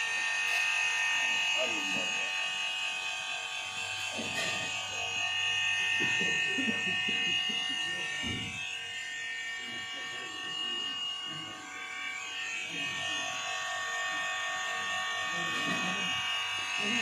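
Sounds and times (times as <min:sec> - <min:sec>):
electrical buzz: 0:04.0 - 0:10.4
faint voices talking: 0:04.0 - 0:17.0.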